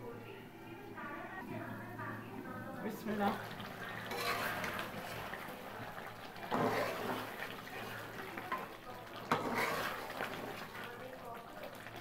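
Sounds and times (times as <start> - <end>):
curry simmering in a pot: 2.3 - 12.0
spatula stirring and scraping: 3.2 - 12.0.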